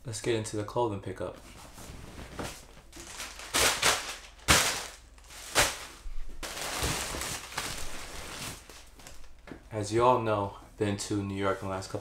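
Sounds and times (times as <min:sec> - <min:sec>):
plastic bag rustling: 0:01.5 - 0:09.5.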